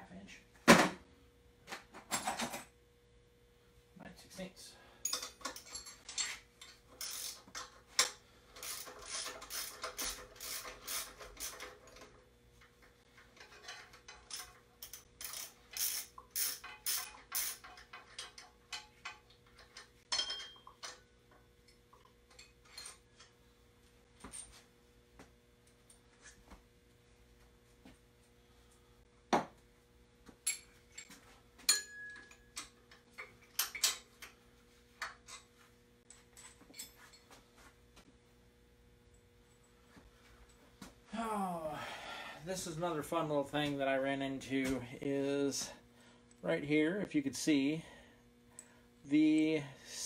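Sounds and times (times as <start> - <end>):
ratchet wrench clicking: 7.0 - 7.4, 8.0 - 11.7, 14.3 - 18.4.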